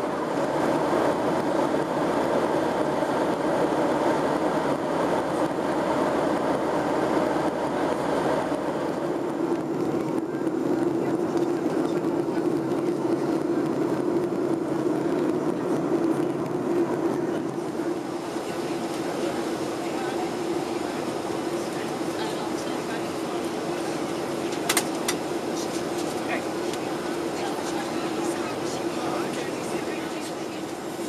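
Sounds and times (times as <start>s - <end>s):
airflow rush in plane cabin: 0.0s - 31.0s
jet engines droning: 0.0s - 31.0s.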